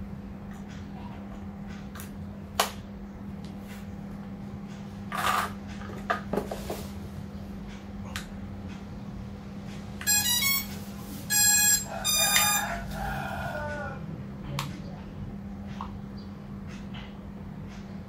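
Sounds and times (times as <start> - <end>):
electronic startup beeps: 10.1 - 10.7.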